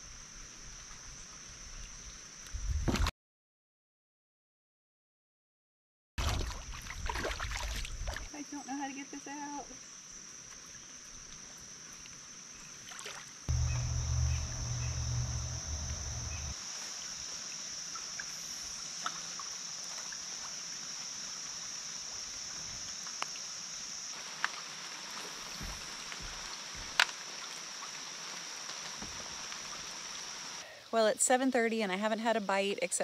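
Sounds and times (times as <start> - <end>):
insects droning: 0.0 - 2.6, 6.8 - 33.0
paddle dipping and dripping: 12.8 - 16.6
low rumble: 13.5 - 16.6.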